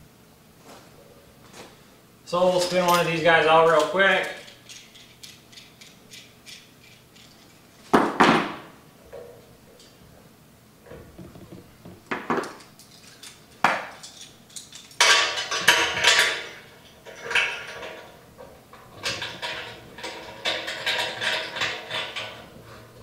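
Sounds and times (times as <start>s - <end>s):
metal fittings clinking: 3.8s - 7.6s.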